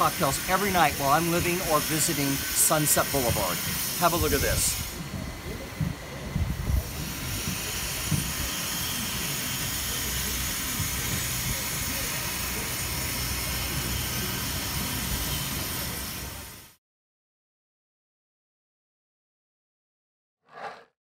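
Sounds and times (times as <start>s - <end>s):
wind blowing across microphone: 4.2s - 8.6s.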